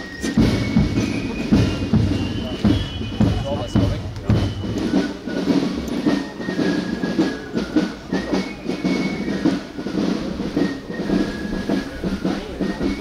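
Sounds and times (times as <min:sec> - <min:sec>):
marching footsteps on asphalt: 0:00.0 - 0:13.0.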